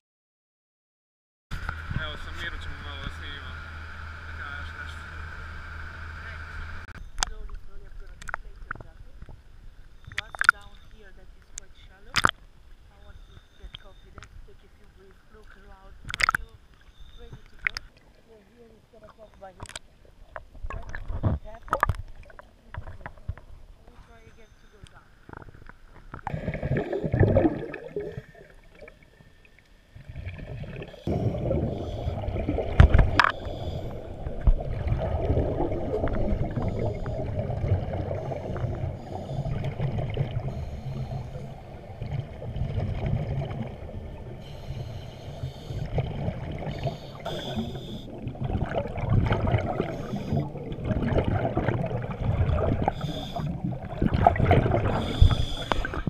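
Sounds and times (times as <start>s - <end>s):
low underwater rumble: 1.6s - 56.0s
scuba regulator bubbling: 10.0s - 12.4s, 15.3s - 18.2s, 19.1s - 24.3s, 25.2s - 56.0s
rush of water: 30.0s - 44.9s, 45.5s - 56.0s.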